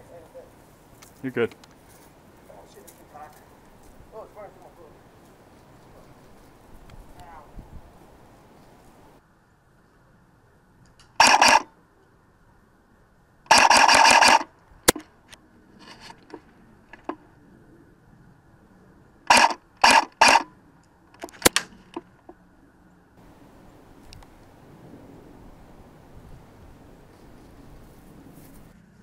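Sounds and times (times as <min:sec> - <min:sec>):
airsoft guns firing in bursts: 0:11.2 - 0:11.6, 0:13.5 - 0:14.5, 0:19.3 - 0:20.4
sharp single clicks: 0:13.5 - 0:15.1.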